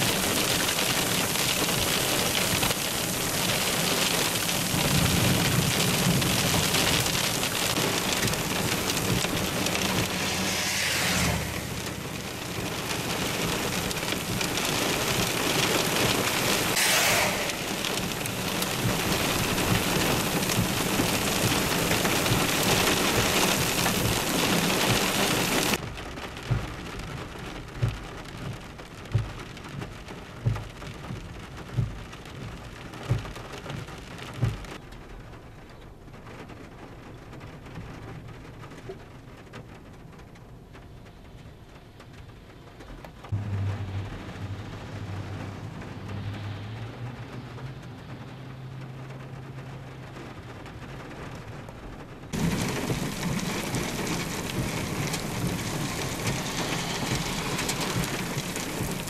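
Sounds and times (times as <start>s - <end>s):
windshield wipers thudding: 0.0s - 10.3s, 11.7s - 16.8s, 17.5s - 25.7s, 26.3s - 34.8s, 52.4s - 59.0s
heavy rain pouring: 0.0s - 59.0s.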